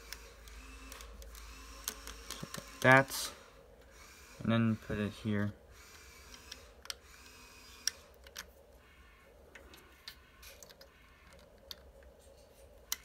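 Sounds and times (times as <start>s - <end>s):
plastic puzzle pieces clicking: 0.5s - 2.9s, 7.8s - 8.5s, 9.6s - 12.1s.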